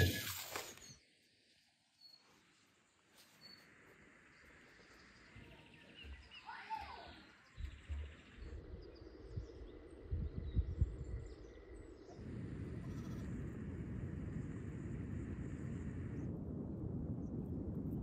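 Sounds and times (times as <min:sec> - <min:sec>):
bird call: 0:00.0 - 0:01.0
low rumble: 0:07.5 - 0:18.0.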